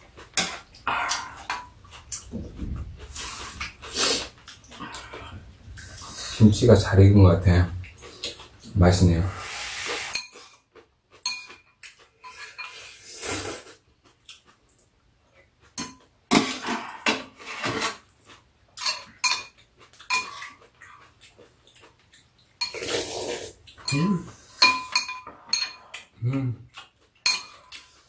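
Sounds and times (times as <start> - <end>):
slurping noodles: 3.1 - 5.2, 9.3 - 10.2, 12.8 - 13.8, 22.7 - 23.6
utensils clinking against bowls: 10.0 - 10.5, 11.2 - 13.0, 18.8 - 20.6, 22.6 - 23.1, 23.7 - 26.1, 27.2 - 28.0.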